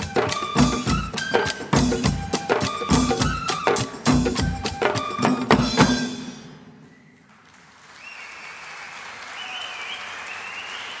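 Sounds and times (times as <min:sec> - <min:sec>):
percussion music drum strikes: 0:00.0 - 0:06.8
audience applauding: 0:07.2 - 0:11.0.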